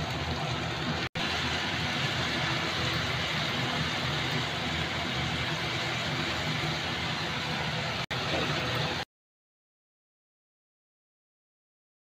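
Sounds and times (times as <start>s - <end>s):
gas stove hiss: 0.0s - 9.0s.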